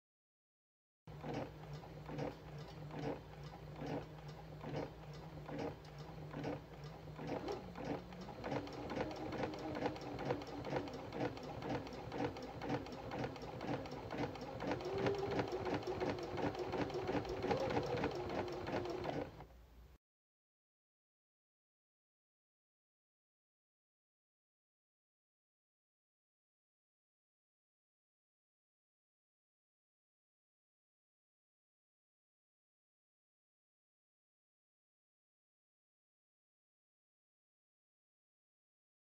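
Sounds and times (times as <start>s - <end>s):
small machine clicking: 1.1s - 19.5s.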